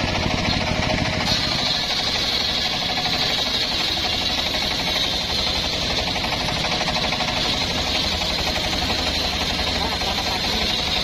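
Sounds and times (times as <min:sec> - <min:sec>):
circular saw ripping log: 0:00.6 - 0:06.2.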